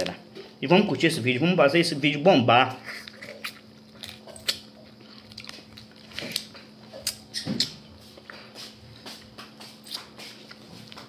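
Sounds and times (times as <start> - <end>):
faint electrical hum: 0.0 - 11.0
wet chewing and lip smacking: 2.9 - 8.7, 9.6 - 11.0.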